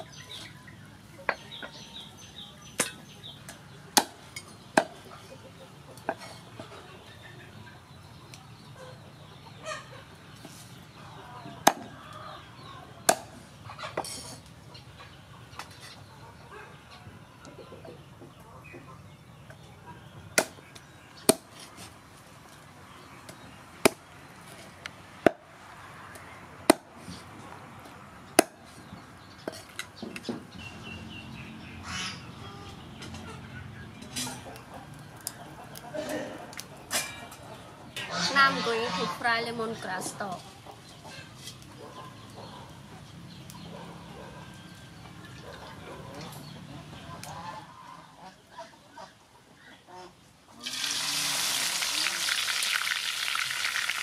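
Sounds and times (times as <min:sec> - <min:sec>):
cleaver chopping on wooden block: 0:28.4 - 0:28.6.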